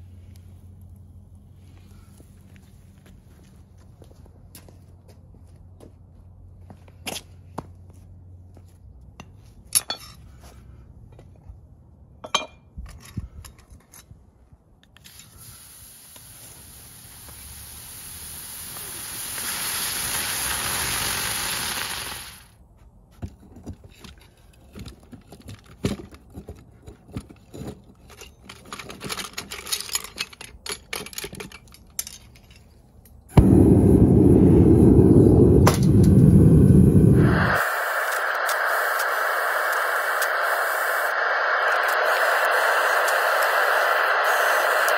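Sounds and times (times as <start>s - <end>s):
hiss: 15.0s - 22.5s, 33.4s - 44.9s
gas furnace burner roaring: 16.4s - 22.4s, 33.3s - 44.9s
metal pieces clinking and scraping: 27.4s - 32.8s.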